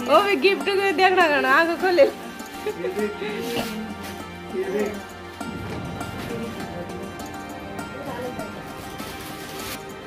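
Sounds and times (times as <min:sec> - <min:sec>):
background music with sustained tones: 0:00.0 - 0:10.0.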